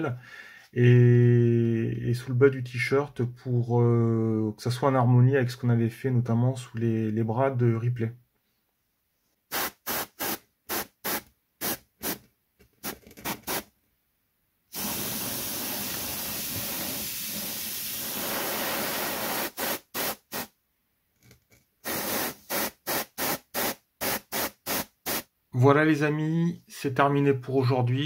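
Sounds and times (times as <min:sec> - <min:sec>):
airbrush spraying: 0:09.5 - 0:12.2, 0:12.8 - 0:13.7, 0:14.7 - 0:20.5, 0:21.8 - 0:25.3.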